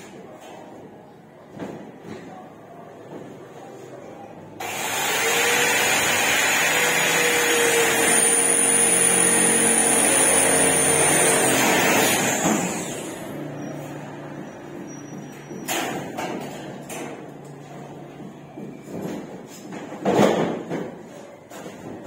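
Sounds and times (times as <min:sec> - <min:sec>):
electric drill whining: 0:04.6 - 0:13.2.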